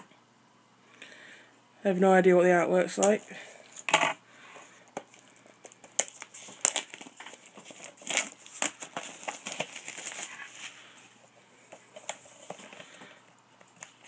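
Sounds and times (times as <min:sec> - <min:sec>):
packaging rustling and crinkling: 0:04.9 - 0:14.0.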